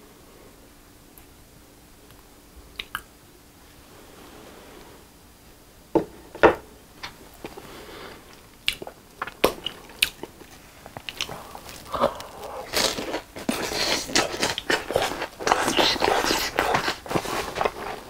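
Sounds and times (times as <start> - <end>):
wet lip smacks and tongue clicks: 2.7 - 3.1, 8.6 - 11.4.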